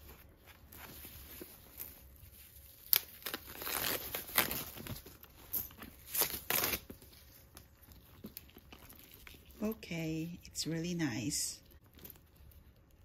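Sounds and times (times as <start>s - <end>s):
plastic wrapping crinkling and tearing: 0.0s - 9.7s.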